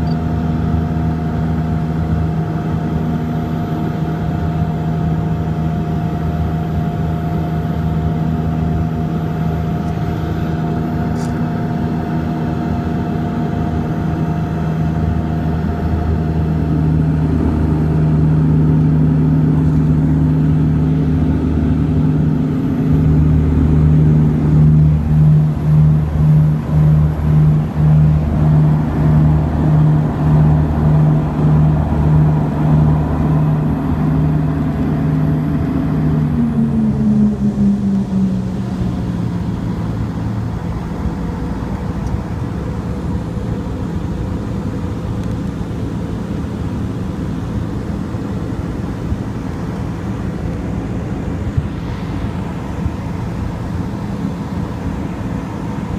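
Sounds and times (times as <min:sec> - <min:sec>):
propeller engine drone in cabin: 0:00.0 - 0:55.9.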